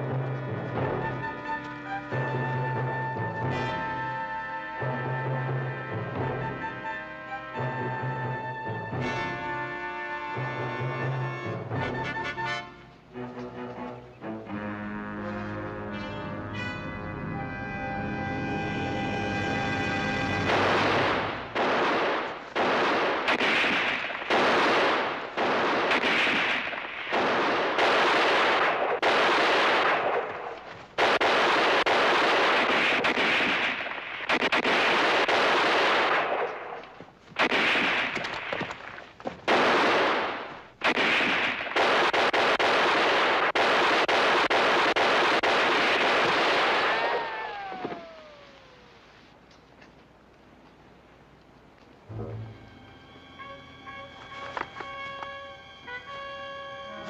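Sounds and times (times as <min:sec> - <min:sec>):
brass music: 0:00.0 - 0:21.5, 0:52.1 - 0:57.0.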